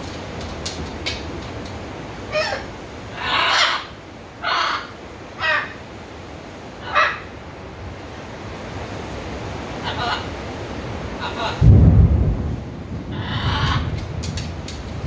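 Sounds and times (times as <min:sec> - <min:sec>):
rain hissing: 0:00.0 - 0:15.0
macaw squawking: 0:02.3 - 0:05.8, 0:06.8 - 0:07.3.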